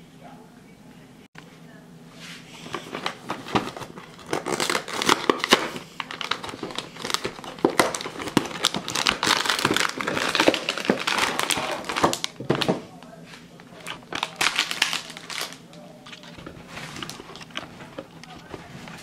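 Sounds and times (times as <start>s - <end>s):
cardboard box tearing: 2.9s - 12.2s.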